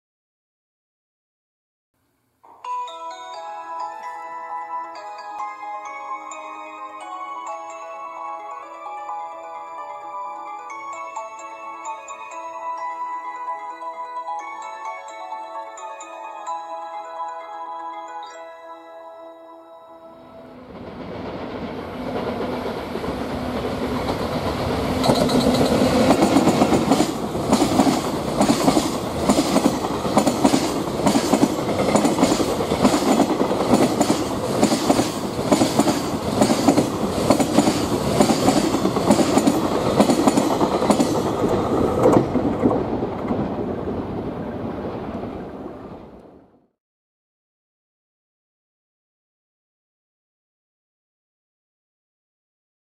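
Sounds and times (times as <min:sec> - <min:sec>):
freight train passing: 0:20.1 - 0:46.4
wheels clacking over rail joints: 0:21.0 - 0:44.2.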